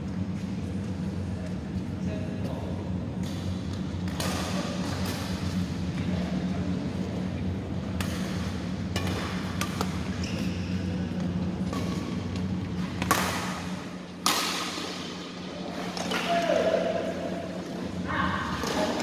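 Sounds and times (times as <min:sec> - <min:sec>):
steady low hum: 0:00.0 - 0:19.0
racket hitting shuttlecock: 0:08.0 - 0:10.5, 0:11.6 - 0:16.4.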